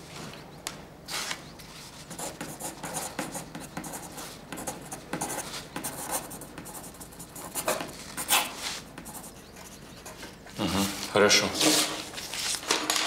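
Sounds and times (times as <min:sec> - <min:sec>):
pencil scratching on paper: 0:02.1 - 0:10.2.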